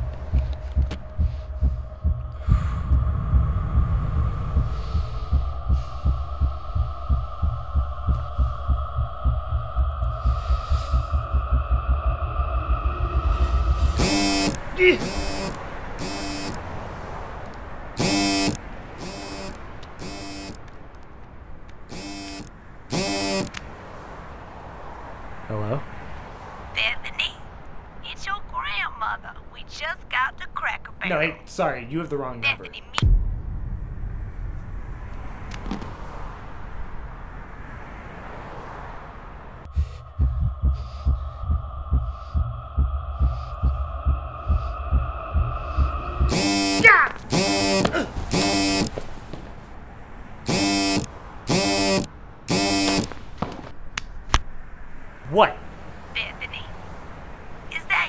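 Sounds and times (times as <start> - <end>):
heartbeat thumps: 0.0 - 16.6, 39.7 - 49.0, 50.5 - 53.1
high drone: 0.0 - 16.6, 18.0 - 20.6, 21.9 - 23.5, 39.7 - 48.9, 50.5 - 53.1
loud horn-like blare: 13.3 - 16.7, 18.0 - 20.6, 21.9 - 23.6, 45.7 - 48.9, 50.5 - 53.1
phone ringtone buzzing tones: 13.9 - 16.6, 18.0 - 20.6, 21.9 - 23.6, 46.3 - 49.0, 50.5 - 53.1.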